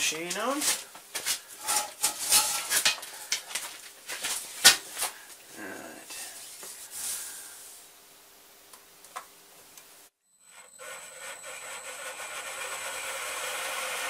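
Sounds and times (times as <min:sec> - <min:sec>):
hands rustling: 0:00.4 - 0:05.4, 0:06.2 - 0:07.8.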